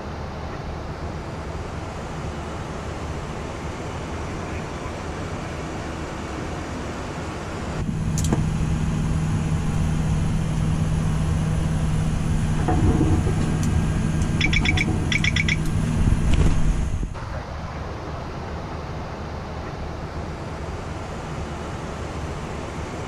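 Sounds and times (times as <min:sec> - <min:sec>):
hum of cockpit fans: 0:00.0 - 0:23.0
rapid high electronic beeping: 0:14.4 - 0:15.7.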